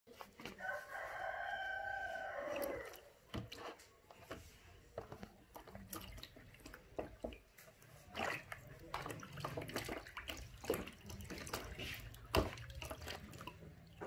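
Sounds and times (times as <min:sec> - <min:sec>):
light water splashes: 0:00.1 - 0:14.0
rooster crowing: 0:00.5 - 0:03.1.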